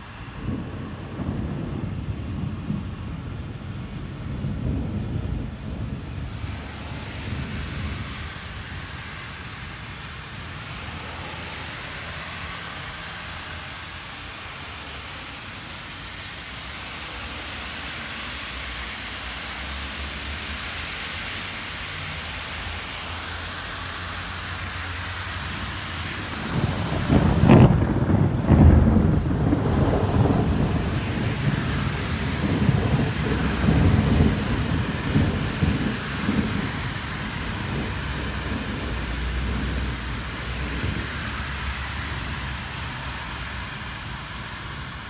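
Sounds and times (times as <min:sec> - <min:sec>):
low thunder rumble: 0:00.0 - 0:10.8, 0:25.3 - 0:45.0
rain hissing: 0:00.0 - 0:45.0.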